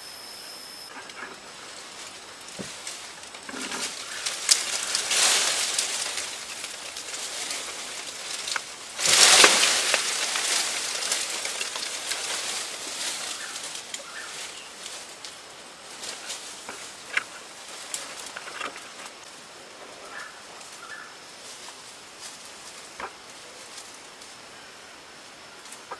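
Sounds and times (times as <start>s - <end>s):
twigs crackling: 0.0s - 19.4s
branches and brush rustling: 0.0s - 25.9s.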